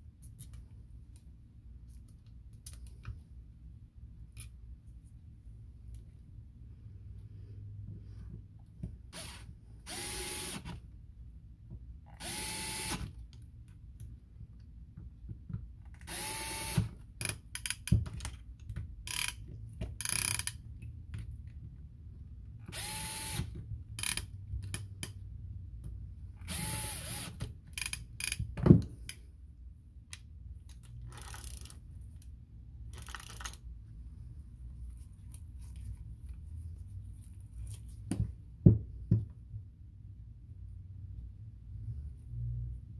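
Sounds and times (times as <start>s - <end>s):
cordless screwdriver motor whine: 22.7s - 23.5s, 26.5s - 27.4s.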